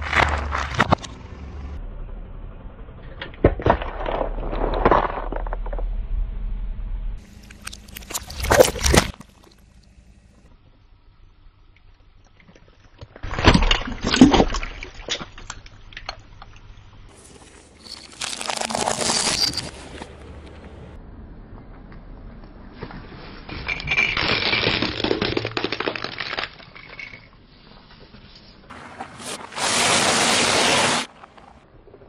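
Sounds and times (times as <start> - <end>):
car tyre crushing objects: 0.0 - 1.6, 3.1 - 6.0, 7.2 - 10.3, 12.2 - 20.5, 22.8 - 27.4.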